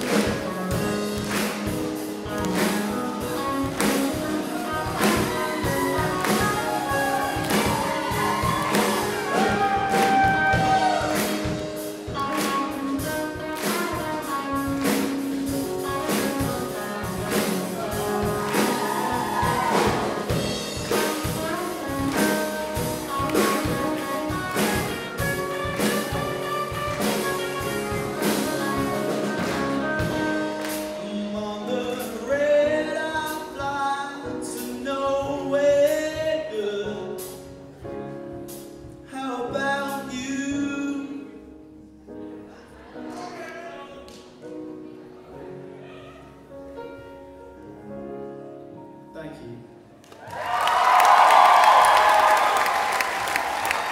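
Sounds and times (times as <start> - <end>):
electric guitar: 0.0 - 32.2
drum kit: 0.0 - 40.8, 50.4 - 53.9
piano: 0.0 - 53.9
lead vocalist singing: 30.4 - 37.4, 39.1 - 41.5.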